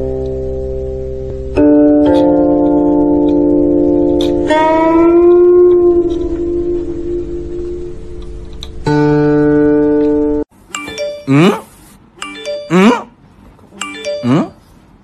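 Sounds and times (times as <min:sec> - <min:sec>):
looping chime-like music: 0:10.7 - 0:11.6, 0:12.2 - 0:12.9, 0:13.8 - 0:14.7.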